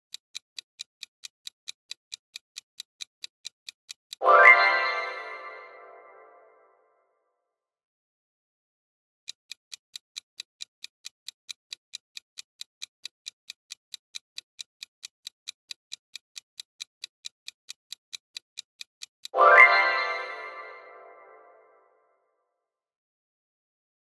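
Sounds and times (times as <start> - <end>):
clock ticking quickly: 0.0 - 5.4, 9.3 - 20.8.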